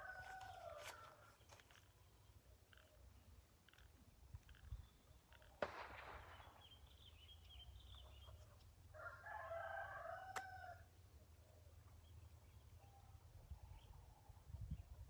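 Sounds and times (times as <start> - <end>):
rooster crowing: 0.0 - 1.2, 9.0 - 10.8.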